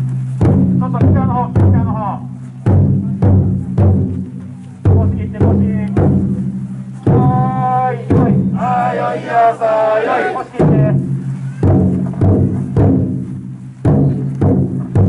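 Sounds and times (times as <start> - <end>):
large drum beats: 0.0 - 9.6, 10.2 - 15.0
people chanting in unison: 8.0 - 11.0.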